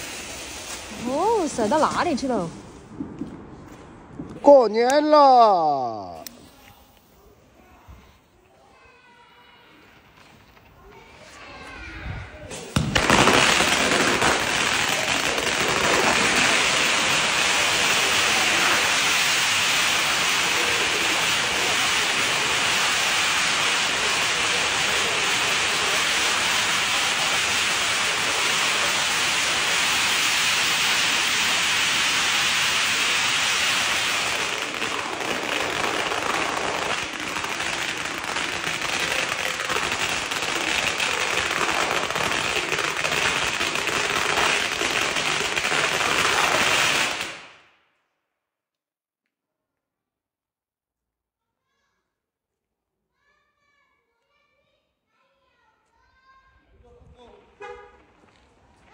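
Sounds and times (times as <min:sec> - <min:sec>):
firecrackers rattling bangs: 0:12.5 - 0:47.6.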